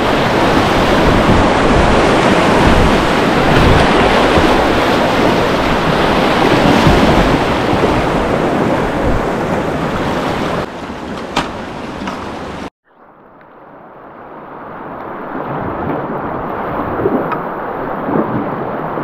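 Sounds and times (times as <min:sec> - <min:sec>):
whitewater rapids rushing: 0:00.0 - 0:12.7.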